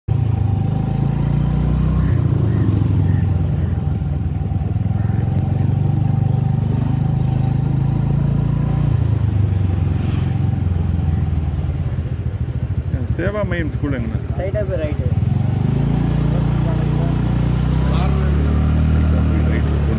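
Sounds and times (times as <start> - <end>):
motor scooter engine rumbling: 0.1 - 19.9.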